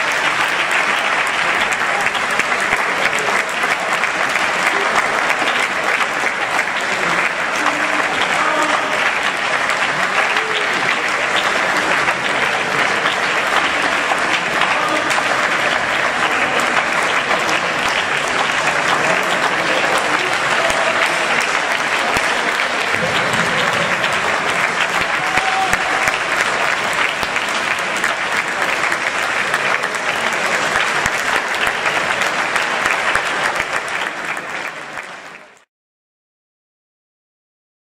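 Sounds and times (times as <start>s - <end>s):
audience applauding: 0.0s - 35.7s.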